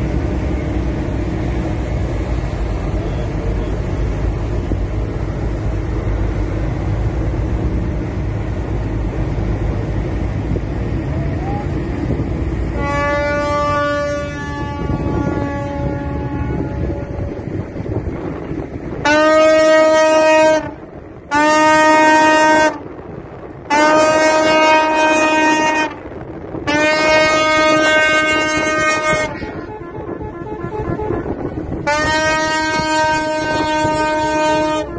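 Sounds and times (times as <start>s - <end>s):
low rumble of boat engine: 0.0s - 34.9s
rushing wake water: 0.0s - 34.9s
tugboat horn blasts: 12.6s - 17.9s, 19.0s - 22.9s, 23.7s - 34.9s
second horn of different pitch: 12.8s - 17.4s, 26.7s - 34.9s.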